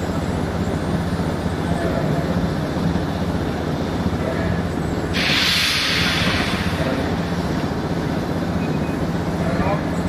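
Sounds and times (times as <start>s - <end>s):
steady low rumble: 0.0s - 10.0s
steam hissing: 5.0s - 9.4s.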